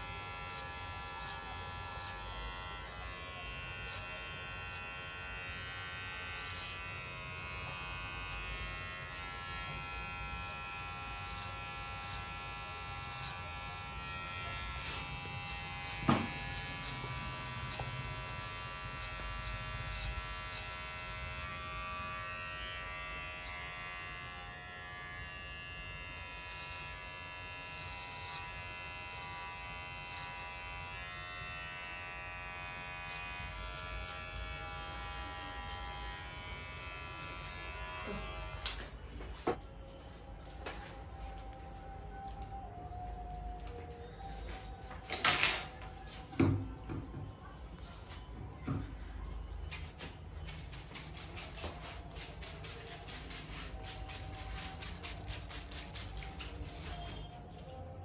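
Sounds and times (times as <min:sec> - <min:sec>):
hair clipper buzzing: 0:00.0 - 0:38.9.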